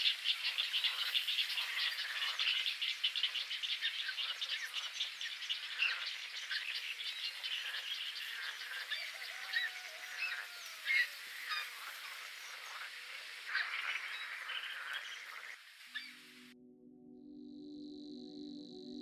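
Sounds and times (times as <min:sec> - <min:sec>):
bird chicks begging calls: 0:03.8 - 0:12.0.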